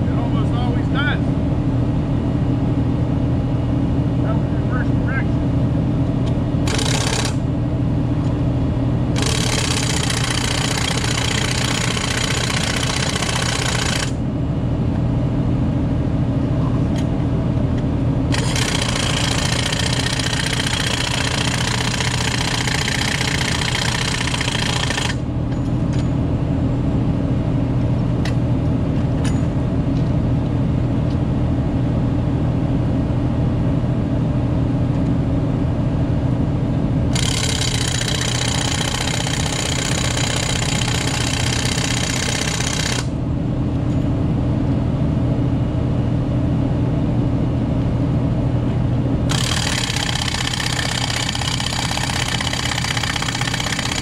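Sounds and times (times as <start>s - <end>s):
impact wrench hammering bolts: 49.3s - 54.0s.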